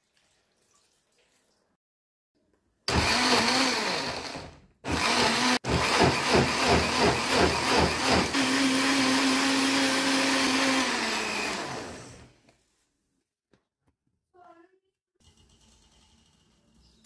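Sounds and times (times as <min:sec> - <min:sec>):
blender motor running: 0:02.9 - 0:12.4.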